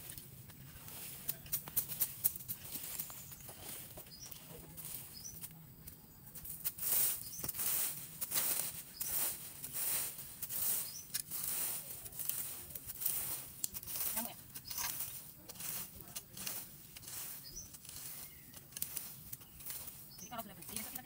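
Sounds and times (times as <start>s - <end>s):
hoe scraping and chopping soil: 0.0s - 5.6s, 6.3s - 21.0s
dry grass rustling: 0.0s - 21.0s.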